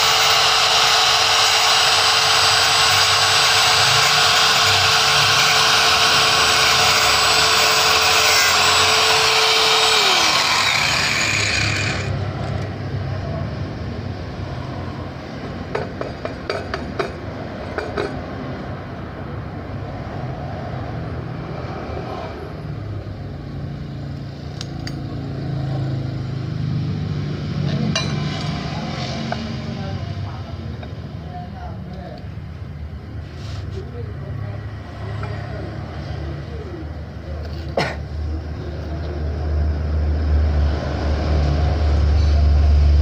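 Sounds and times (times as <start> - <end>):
angle grinder cutting steel: 0.0 - 12.8
sharp knocks and clicks on metal: 15.7 - 18.2.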